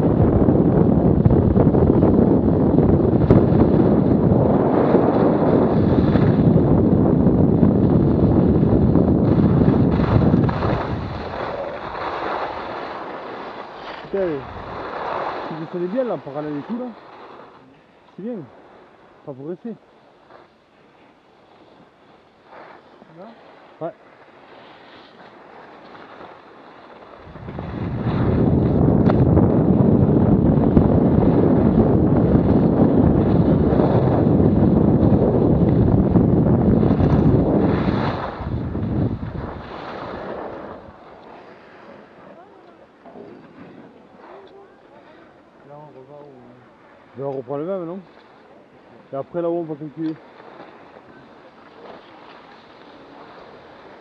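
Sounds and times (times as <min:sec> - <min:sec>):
wind buffeting microphone: 0:00.0 - 0:20.3, 0:25.4 - 0:54.0
skis hissing over snow: 0:09.2 - 0:28.4, 0:39.4 - 0:42.5, 0:49.1 - 0:54.0.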